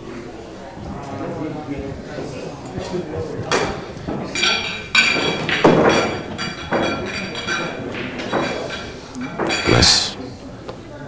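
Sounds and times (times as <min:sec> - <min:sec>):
pool balls clacking: 0:01.9 - 0:10.1.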